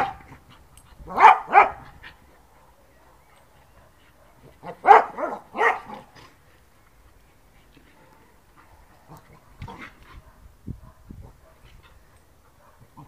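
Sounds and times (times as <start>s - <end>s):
dog barking: 0.0s - 0.3s, 1.1s - 1.8s, 2.6s - 6.1s, 9.1s - 11.7s, 12.6s - 13.0s.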